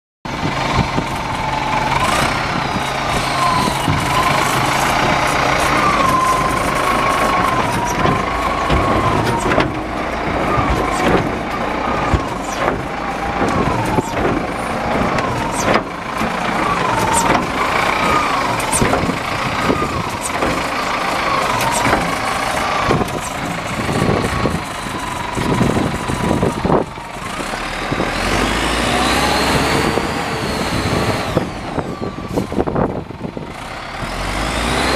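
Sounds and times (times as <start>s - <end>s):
wheel loader engine running: 0.3s - 34.9s
wavering whine: 1.1s - 26.8s.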